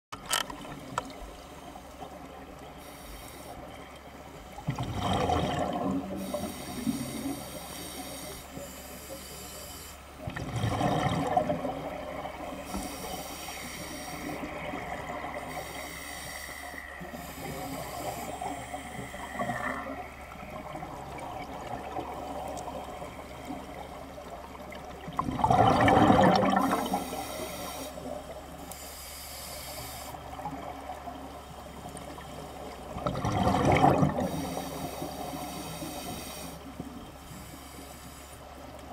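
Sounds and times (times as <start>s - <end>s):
regulator hiss: 2.8s - 3.7s, 6.2s - 10.1s, 12.6s - 14.6s, 15.4s - 19.8s, 26.7s - 30.3s, 34.3s - 38.4s
exhaled bubbles underwater: 4.5s - 7.2s, 10.2s - 13.2s, 17.0s - 27.4s, 30.3s - 35.8s.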